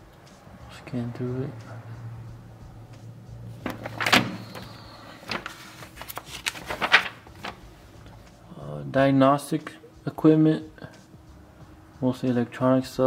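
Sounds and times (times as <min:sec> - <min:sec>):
glossy paper rustling: 0:03.6 - 0:08.2.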